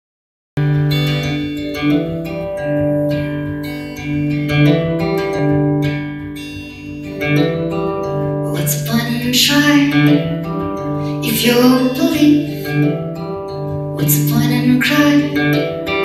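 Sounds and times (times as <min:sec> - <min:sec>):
acoustic guitar strumming: 0:00.6 - 0:16.0.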